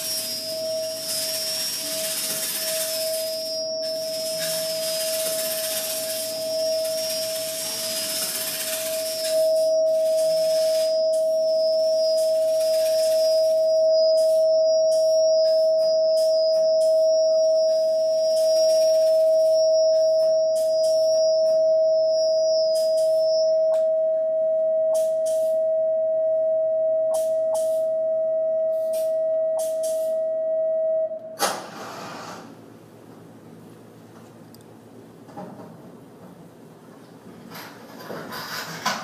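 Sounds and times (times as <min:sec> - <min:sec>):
loud burst of noise: 0:00.0 - 0:09.5, 0:31.4 - 0:32.7
thin high whistling tone: 0:00.0 - 0:31.2
steady pure electronic tone: 0:00.0 - 0:35.2
bursts of hiss: 0:31.4 - 0:32.6.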